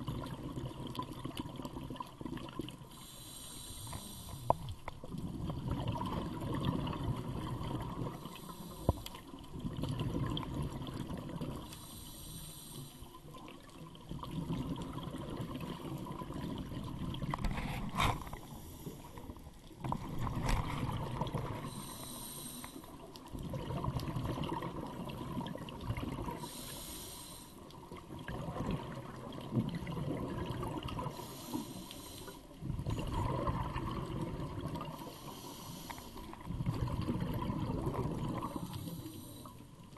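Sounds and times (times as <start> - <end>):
exhaled bubbles rumbling: 0.0 - 2.9, 4.4 - 8.4, 9.2 - 11.7, 13.4 - 21.9, 23.2 - 26.5, 27.8 - 31.2, 32.5 - 35.2, 36.2 - 39.9
regulator hissing inhale: 2.9 - 4.8, 8.2 - 9.2, 11.7 - 13.2, 17.6 - 19.3, 21.6 - 23.1, 26.3 - 27.8, 31.1 - 32.6, 35.0 - 36.5, 38.4 - 39.7.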